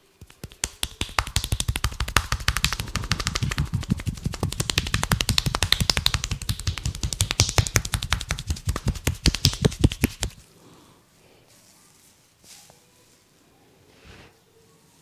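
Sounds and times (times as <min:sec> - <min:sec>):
hands slapping head rapidly: 0:00.0 - 0:10.4.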